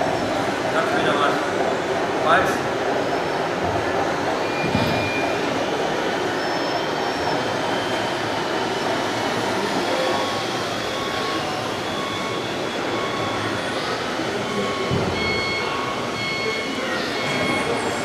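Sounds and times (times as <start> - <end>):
busy hall din: 0.0 - 18.0
faint high machine whines: 0.0 - 18.0.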